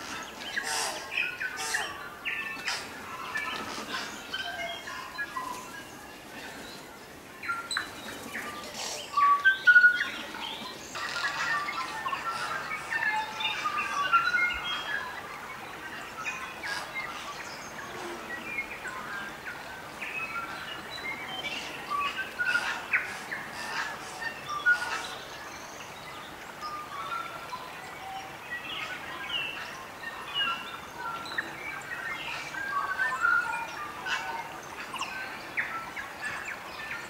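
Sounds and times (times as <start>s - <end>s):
birds whistling and chirping: 0.0s - 37.0s.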